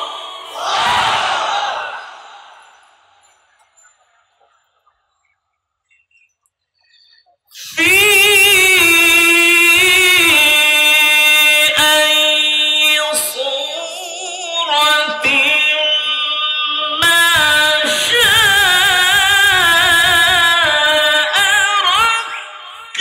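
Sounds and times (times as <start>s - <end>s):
man chanting melodic recitation: 7.6s - 23.0s.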